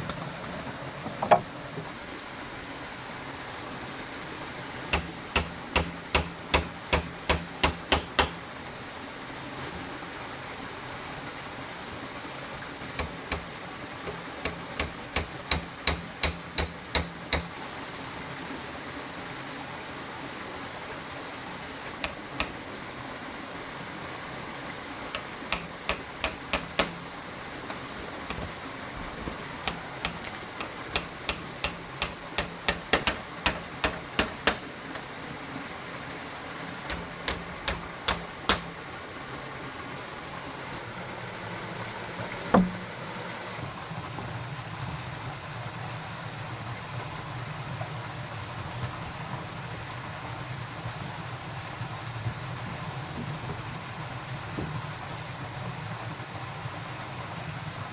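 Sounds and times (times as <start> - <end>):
stream water rushing: 0.0 - 57.9
blade chopping bamboo: 4.9 - 8.4, 13.0 - 17.5, 22.0 - 22.6, 25.2 - 27.0, 29.7 - 34.7, 36.9 - 38.7.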